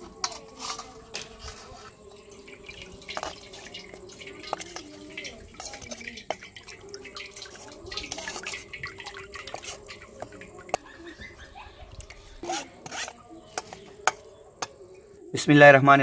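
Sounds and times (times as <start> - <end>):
spoon scraping and tapping a sieve: 0.0 - 14.9
liquid dripping into a bowl: 2.0 - 12.2.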